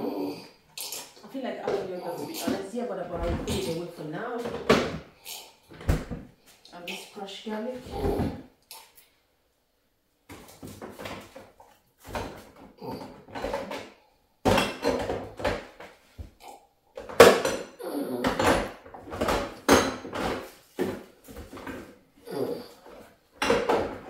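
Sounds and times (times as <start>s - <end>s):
jars and tins clunking: 1.4s - 5.0s, 14.5s - 15.8s, 22.9s - 24.0s.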